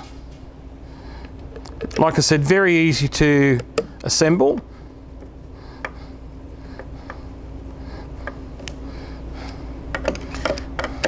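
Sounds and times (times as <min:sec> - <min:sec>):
steady low hum: 0:00.0 - 0:11.0
screwdriver clicks and taps: 0:09.9 - 0:11.0.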